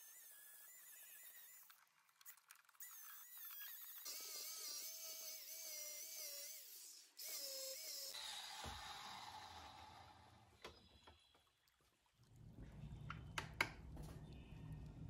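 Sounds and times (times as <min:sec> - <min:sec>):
angle grinder grinding metal: 0:00.0 - 0:01.8, 0:02.8 - 0:10.4.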